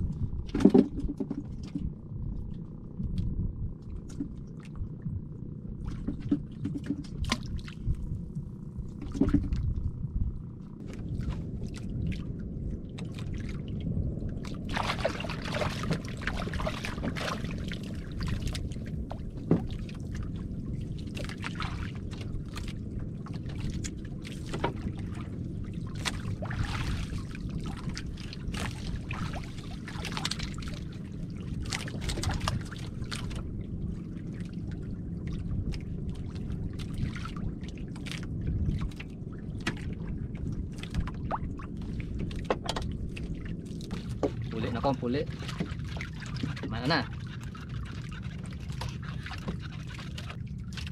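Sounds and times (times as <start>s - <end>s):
low rumble: 0.0s - 50.9s
water lapping against boat hull: 0.0s - 50.9s
knocks on boat: 0.4s - 2.0s, 5.9s - 7.6s, 9.0s - 9.7s, 19.2s - 19.8s, 24.4s - 25.0s, 42.3s - 42.9s, 44.0s - 45.8s.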